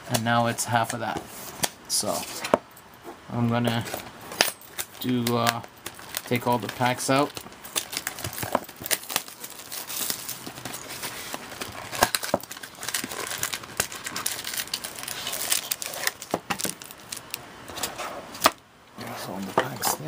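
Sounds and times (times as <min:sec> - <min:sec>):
foil packs crinkling: 0:04.6 - 0:18.5.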